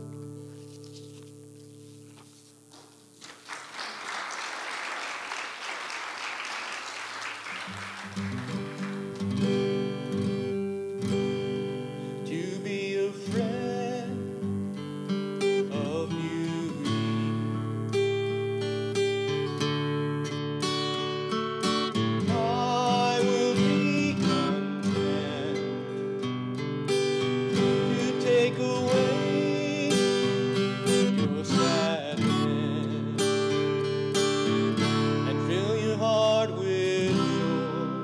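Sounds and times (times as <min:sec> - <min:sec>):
acoustic guitar strumming: 0:00.0 - 0:03.2, 0:07.2 - 0:38.0
man singing: 0:12.1 - 0:14.6, 0:15.4 - 0:17.6, 0:22.2 - 0:26.3, 0:27.4 - 0:34.0, 0:35.0 - 0:38.0.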